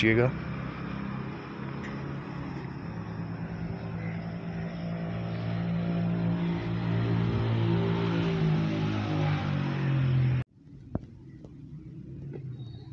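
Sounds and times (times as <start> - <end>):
vehicle engine humming: 0.0 - 12.9.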